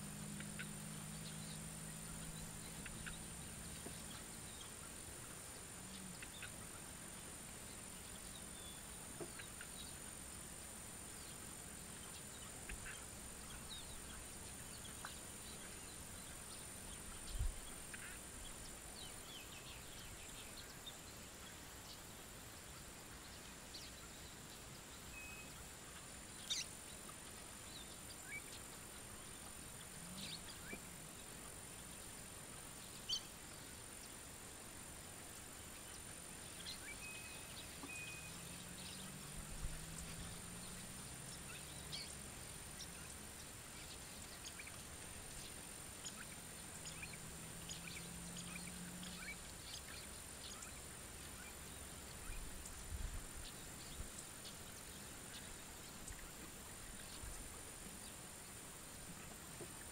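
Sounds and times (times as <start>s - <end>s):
faint low hum: 0.0s - 59.9s
steady high hiss: 0.0s - 59.9s
bird chirps: 25.0s - 25.7s, 36.6s - 43.2s.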